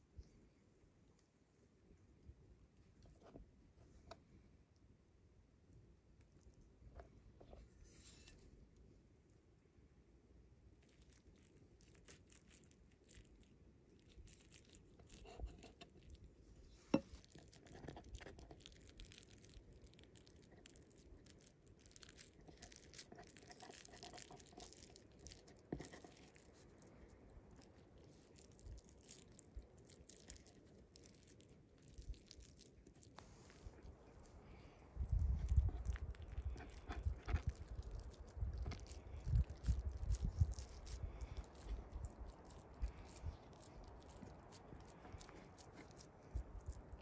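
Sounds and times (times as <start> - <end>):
fingers squishing raw minced meat: 10.7 - 47.0.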